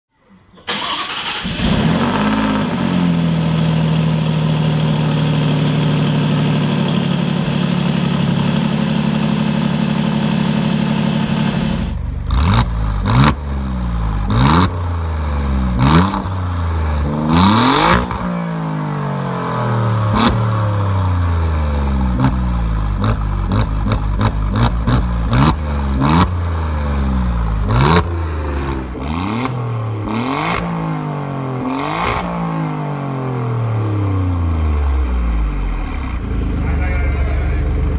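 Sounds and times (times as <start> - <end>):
car engine idling: 0.4 - 17.3, 32.3 - 37.9
car engine revving: 0.7 - 37.9.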